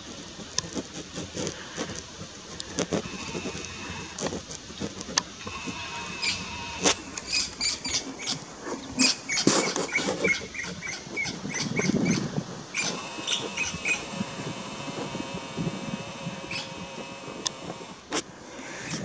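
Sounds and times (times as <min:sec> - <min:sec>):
rustling in dry grass: 0:00.0 - 0:19.0
bird chirping: 0:05.4 - 0:14.9, 0:16.4 - 0:17.0.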